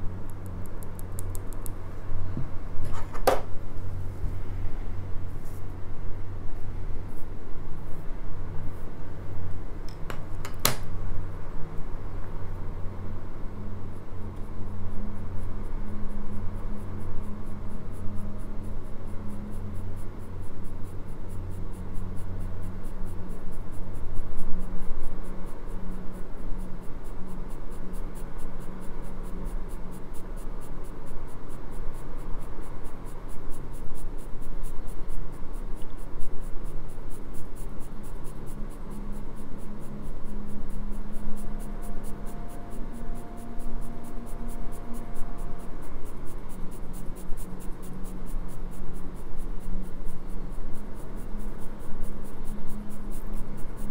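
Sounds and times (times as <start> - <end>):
low steady hum: 0.0 - 53.9
sharp click: 9.9 - 10.9
pencil scratching on paper: 26.2 - 53.9.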